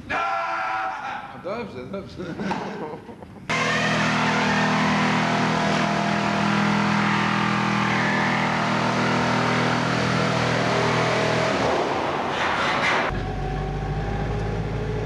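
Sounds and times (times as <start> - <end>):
low mechanical drone: 3.4 - 15.0.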